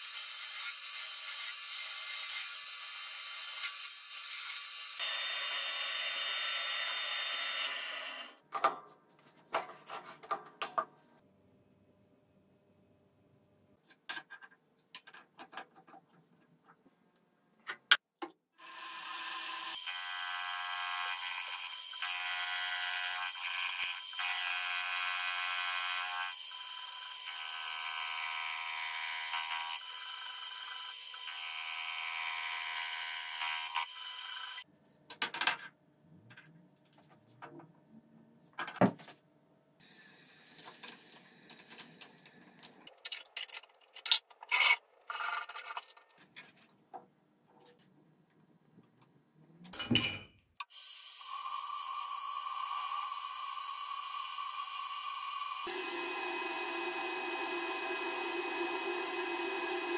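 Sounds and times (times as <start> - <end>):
milling machine cutting metal: 51.2 - 59.9.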